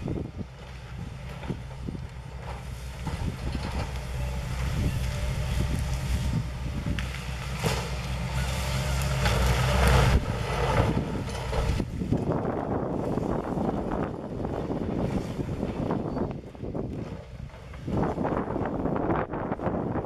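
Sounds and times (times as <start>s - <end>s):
excavator diesel engine under load: 0.0s - 20.0s
tree crashing and cracking: 0.2s - 16.0s.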